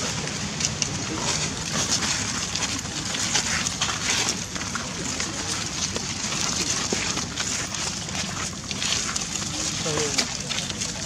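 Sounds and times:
crackling outdoor noise: 0.0s - 11.0s
faint voices: 0.0s - 11.0s.

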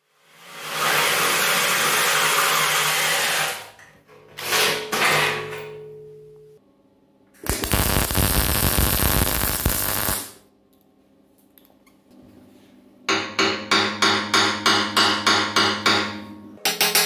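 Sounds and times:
welder crackling hiss: 7.4s - 10.4s
hammer tapping steel: 13.1s - 17.0s.

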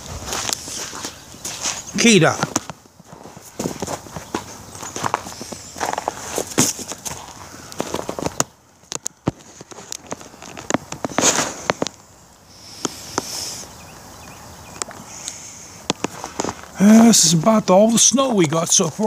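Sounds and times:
footsteps crunching on icy snow: 0.0s - 19.0s.

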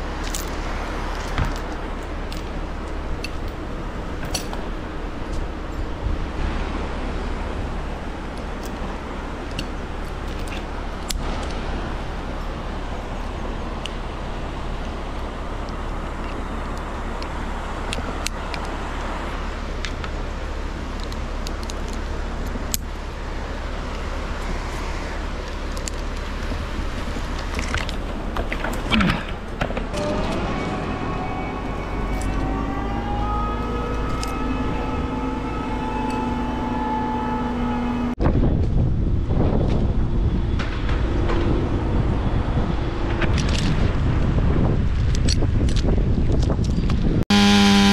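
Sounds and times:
steel chain and hook clinking: 3.2s - 4.6s.

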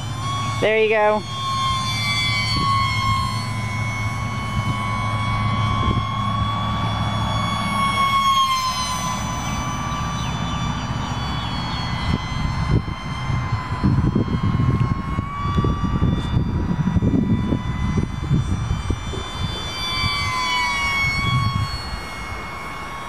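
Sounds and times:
model airplane motor whining: 0.0s - 23.0s.

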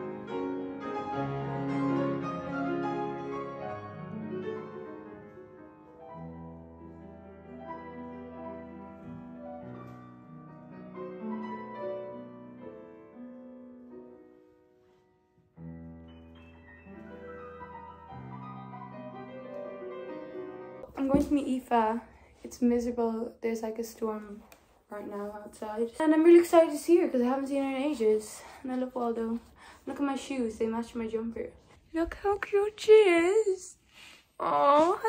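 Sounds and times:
slow piano chords: 0.0s - 21.4s.

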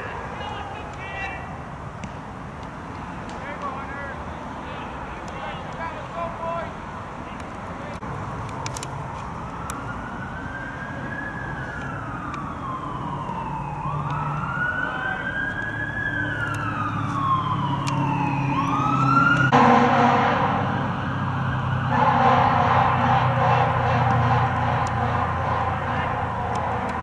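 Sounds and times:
emergency siren wailing: 8.3s - 27.0s
loud horn blast: 19.5s - 21.0s, 21.8s - 26.9s.

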